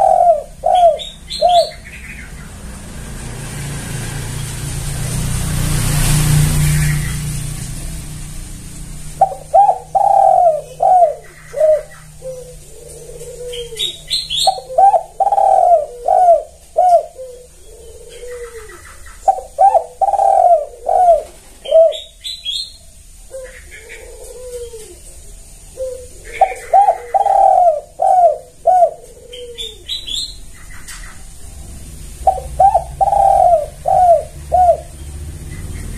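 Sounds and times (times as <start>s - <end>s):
dove cooing: 0.0s - 2.9s, 9.0s - 35.9s
passing vehicle: 0.0s - 22.6s, 25.7s - 35.9s
high bird chirps: 29.4s - 31.3s.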